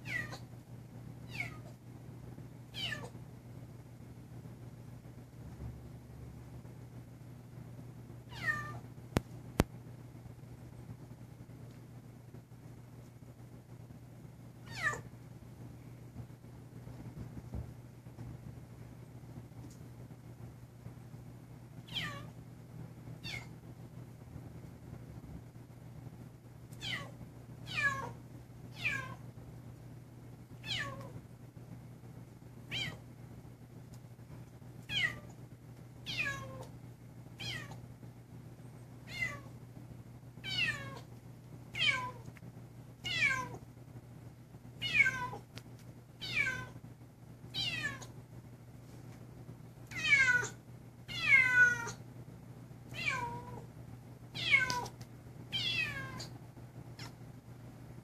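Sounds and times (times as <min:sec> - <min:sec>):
steady low hum: 0:00.0 - 0:58.0
kitten meowing: 0:02.8 - 0:03.2, 0:23.2 - 0:23.5, 0:54.4 - 0:54.9.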